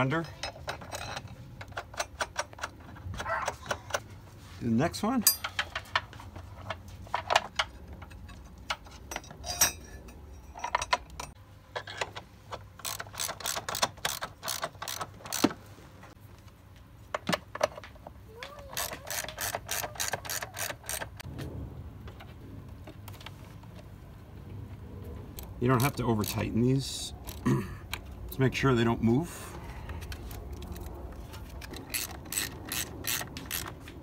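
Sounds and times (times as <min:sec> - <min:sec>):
socket ratchet clicking: 0:12.8 - 0:15.5, 0:18.7 - 0:21.2, 0:27.2 - 0:27.4, 0:31.5 - 0:33.8.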